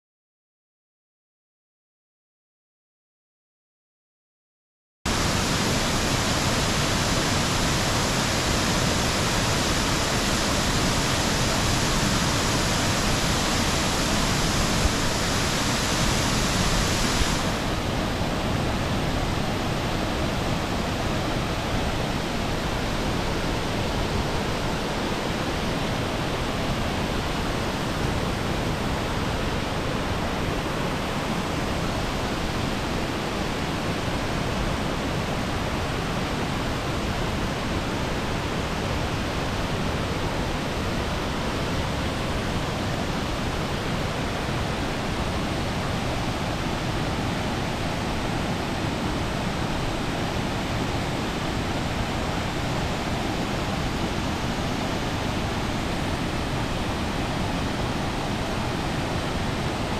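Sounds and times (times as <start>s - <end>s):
waterfall rushing: 5.1s - 59.9s.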